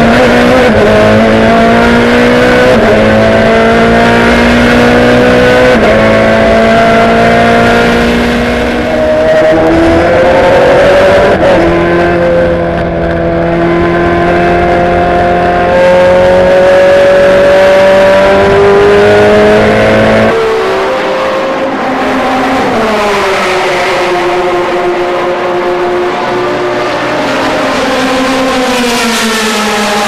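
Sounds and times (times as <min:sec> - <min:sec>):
race car engine at full throttle: 0:00.0 - 0:30.0.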